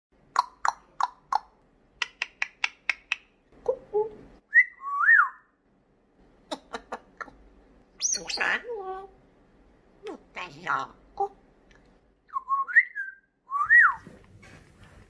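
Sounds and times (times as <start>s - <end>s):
parrot clicking: 0.4s - 3.3s
parrot whistles: 4.5s - 5.5s, 12.3s - 14.0s.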